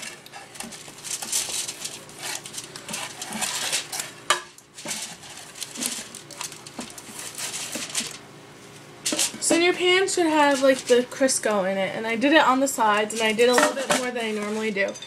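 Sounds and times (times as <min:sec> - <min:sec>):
paper towel scraping foil: 0:00.0 - 0:08.2, 0:09.0 - 0:11.0.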